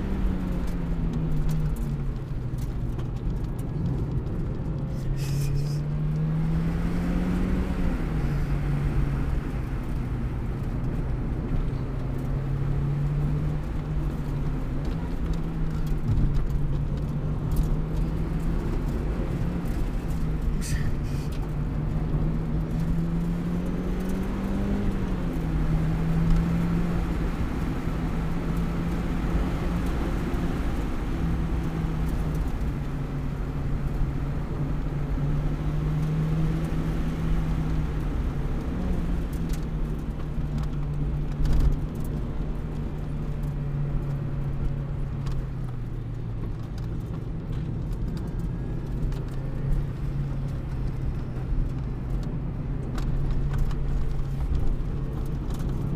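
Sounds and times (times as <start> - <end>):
car engine from inside cabin: 0.0 - 55.9
road noise: 0.0 - 55.9.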